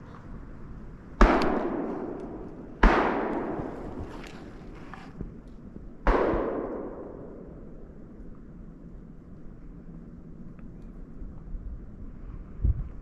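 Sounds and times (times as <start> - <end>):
gunshots with rolling echo: 1.2 - 4.3, 6.0 - 8.0.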